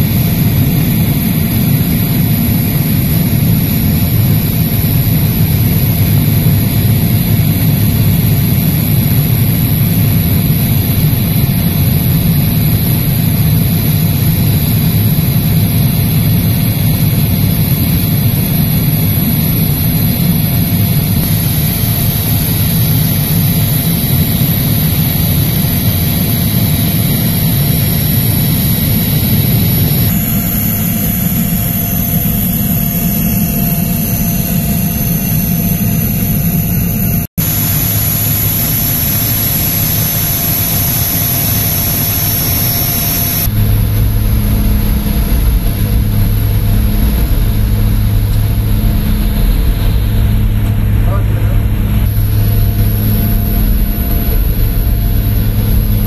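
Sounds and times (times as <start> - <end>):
propeller plane engines droning: 0.0 - 56.0
thin high whine: 0.0 - 56.0.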